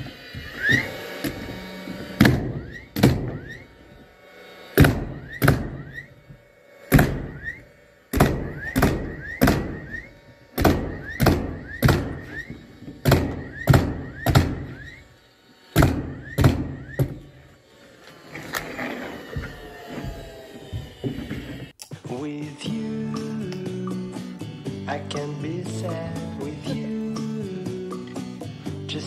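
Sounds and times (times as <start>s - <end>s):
short rising motor whine: 0.0s - 21.8s
nail gun shots: 2.2s - 3.5s, 4.8s - 6.0s, 6.9s - 7.3s, 8.1s - 10.0s, 10.6s - 12.4s, 13.0s - 14.7s, 15.8s - 17.2s.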